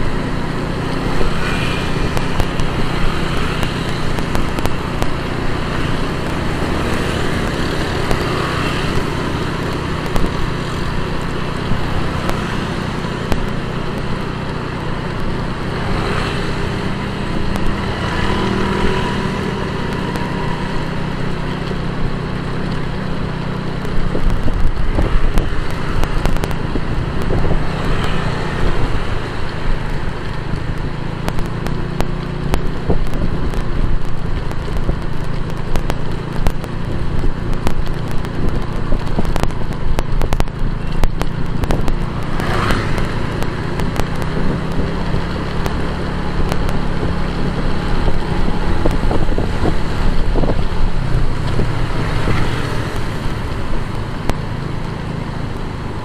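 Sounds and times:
motorcycle engine running: 0:00.0 - 0:56.0
road and traffic noise: 0:00.0 - 0:56.0.

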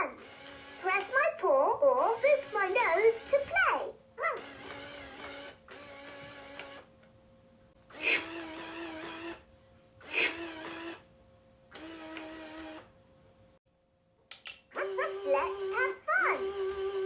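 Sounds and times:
toy motor whirring: 0:00.0 - 0:06.9, 0:07.9 - 0:11.1, 0:11.7 - 0:12.9, 0:14.7 - 0:17.0.

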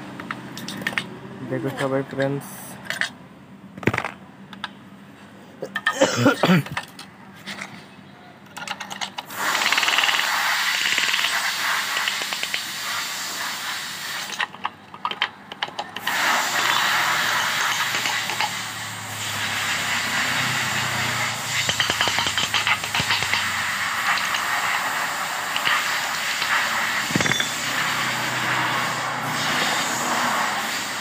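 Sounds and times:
steady hiss: 0:09.3 - 0:14.4, 0:16.0 - 0:31.0
metal tools tapping engine block: 0:21.5 - 0:24.6, 0:26.4 - 0:27.9.

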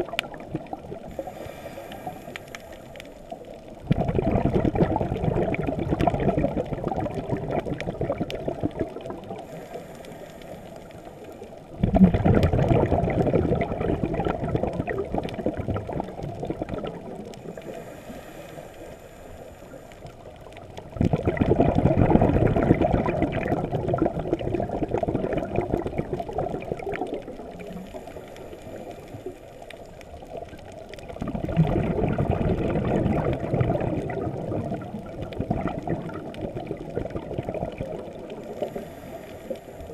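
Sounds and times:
exhaled bubbles underwater: 0:00.0 - 0:39.9
regulator inhalation hiss: 0:01.1 - 0:03.2, 0:09.5 - 0:11.3, 0:17.6 - 0:20.2, 0:38.6 - 0:39.9.

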